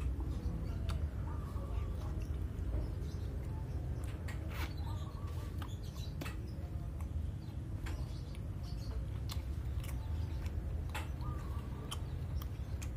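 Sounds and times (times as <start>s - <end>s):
wet mouth clicks and smacks: 9.1s - 12.9s.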